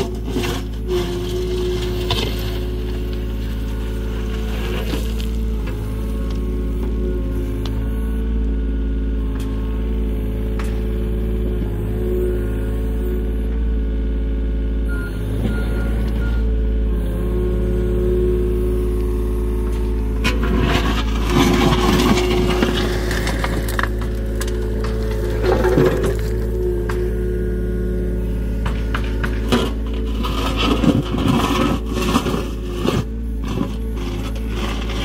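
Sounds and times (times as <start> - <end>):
bucket scraping stony soil: 0.0 - 6.6, 19.2 - 35.0
excavator diesel engine: 0.0 - 35.0.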